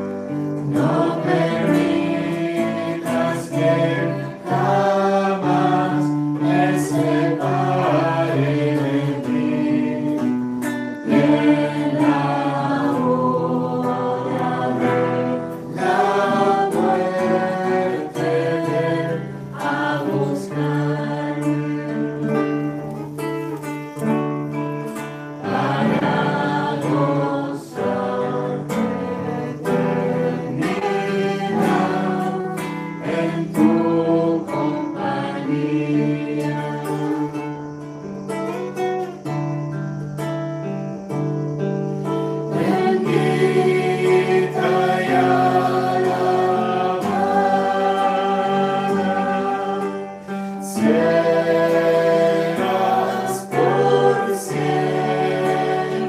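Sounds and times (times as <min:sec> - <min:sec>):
voices singing a hymn: 0:00.0 - 0:40.0, 0:41.0 - 0:56.0
strummed acoustic guitar: 0:00.0 - 0:56.0.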